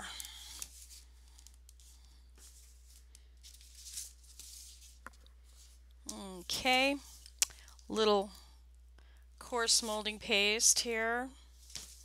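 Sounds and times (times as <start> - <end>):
low electrical hum: 0.0 - 12.0
rustling and scraping: 0.2 - 7.4, 11.5 - 12.0.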